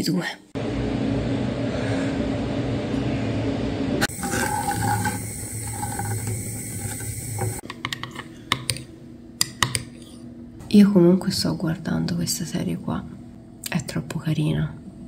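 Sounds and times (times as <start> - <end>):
milk pouring: 4.1 - 7.6
wooden spoon stirring in pan: 4.1 - 8.3.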